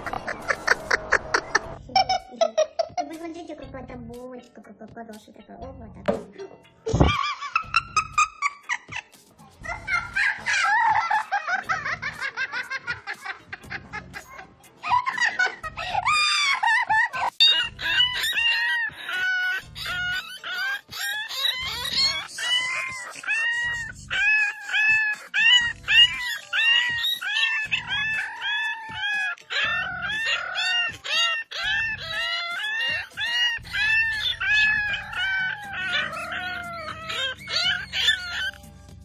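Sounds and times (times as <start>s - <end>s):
background music with beat: 2.8s - 15.9s, 38.5s - 39.0s
puppies howling: 9.7s - 12.5s, 14.9s - 38.6s.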